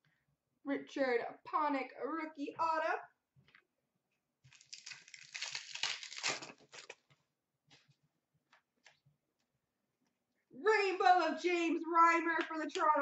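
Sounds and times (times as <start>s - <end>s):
foil wrapper crinkling and tearing: 4.5s - 7.0s.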